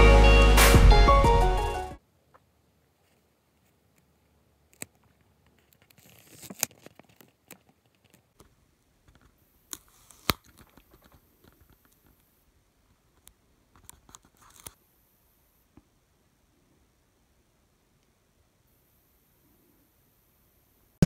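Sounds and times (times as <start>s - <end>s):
paper rustling: 5.5s - 8.2s.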